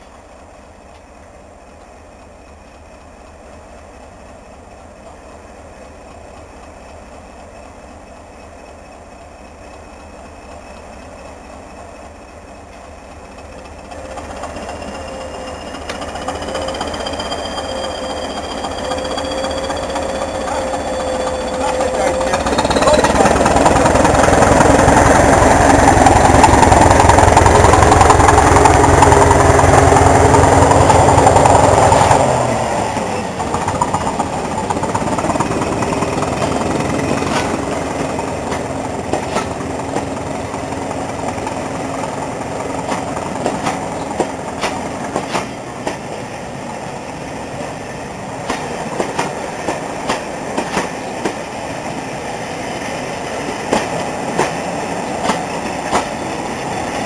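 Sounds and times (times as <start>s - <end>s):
diesel train engine thumping: 0.1s - 57.0s
train wheels clicking on rail joints: 8.2s - 57.0s.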